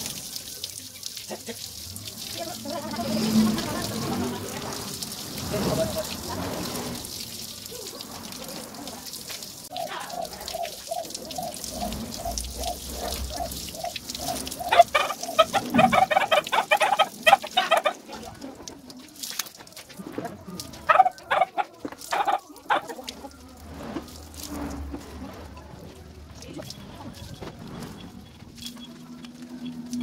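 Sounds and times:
garden hose spraying: 0.0 - 30.0
chicken clucking and cackling: 14.6 - 18.0, 20.9 - 23.1.

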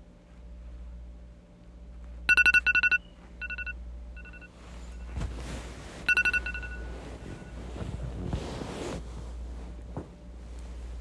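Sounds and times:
electronic alarm beeps: 2.3 - 4.5, 6.1 - 7.6.

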